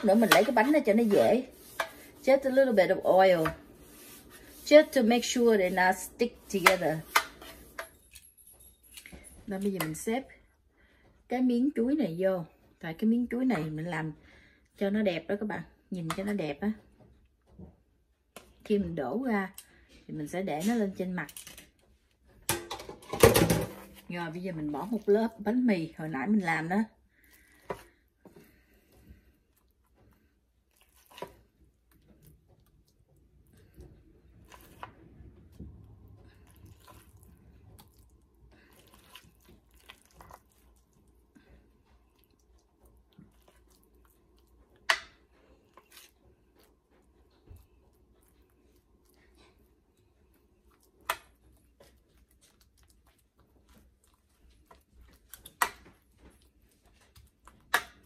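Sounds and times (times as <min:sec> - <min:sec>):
metal spoon scraping a pan: 0:00.0 - 0:08.2
soft squishing of bread mixture: 0:00.0 - 0:22.5, 0:23.8 - 0:58.0.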